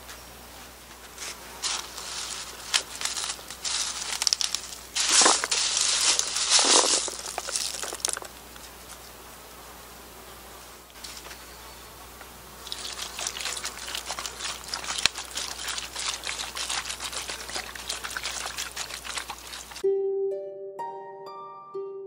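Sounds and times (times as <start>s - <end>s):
plastic netting crinkling: 1.2s - 8.5s, 12.6s - 19.8s
snail shells clattering: 1.6s - 8.4s.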